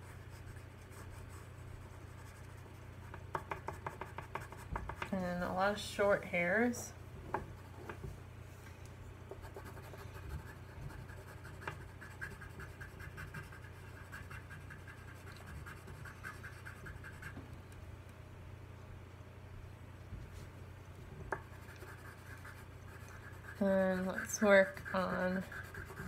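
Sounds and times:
pencil scratching on paper: 0.0s - 5.0s, 9.4s - 17.4s, 21.3s - 26.0s
steady low hum: 0.0s - 26.0s.

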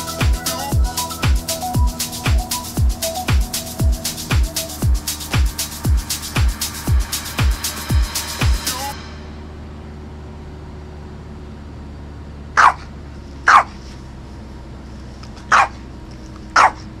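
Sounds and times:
steady low hum: 0.0s - 17.0s
dog barking: 12.6s - 12.9s, 13.5s - 13.8s, 15.5s - 15.8s, 16.6s - 16.9s.

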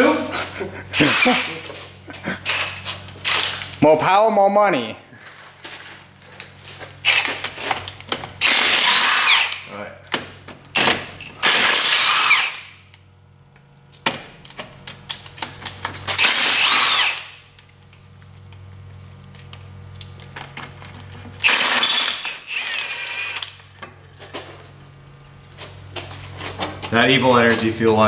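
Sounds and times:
impact wrench on bolts: 7.0s - 7.4s, 8.3s - 12.8s, 16.1s - 17.4s, 21.4s - 23.6s.

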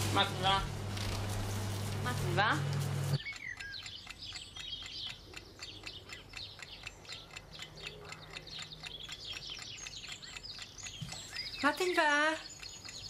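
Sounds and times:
songbirds chirping: 2.0s - 13.0s
fast even clicking: 3.2s - 13.0s.

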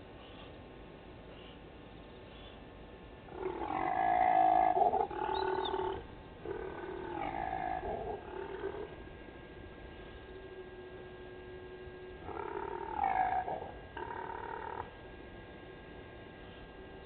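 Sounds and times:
antelope roaring grunts: 3.3s - 9.0s, 12.2s - 14.9s.

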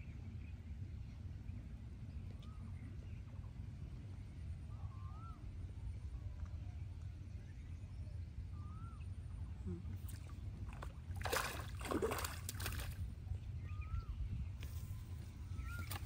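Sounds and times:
low outdoor rumble: 0.0s - 16.0s
pond water splashing: 9.9s - 13.2s, 15.7s - 16.0s.

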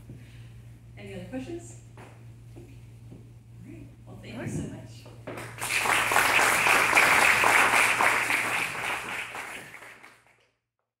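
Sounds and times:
audience applauding: 5.4s - 10.4s.

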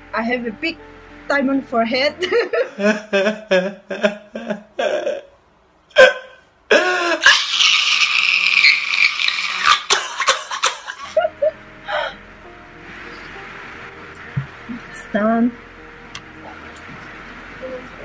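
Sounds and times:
man screaming: 6.0s - 9.0s.

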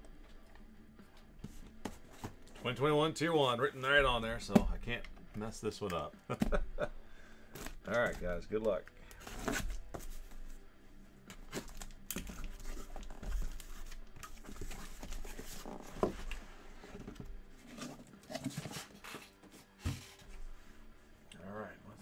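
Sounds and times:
cardboard crinkling and scraping: 9.1s - 10.6s, 11.4s - 20.6s.

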